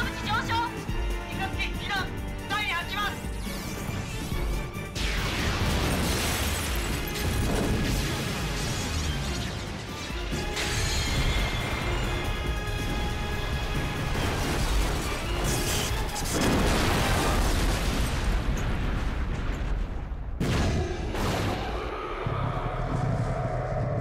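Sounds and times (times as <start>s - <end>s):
soundtrack music: 0.0s - 16.8s
booming blast: 5.0s - 9.2s, 16.3s - 21.9s.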